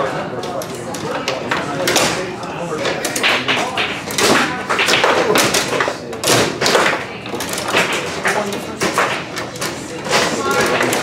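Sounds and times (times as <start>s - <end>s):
foosball ball knocks and thuds: 2.8s - 11.0s.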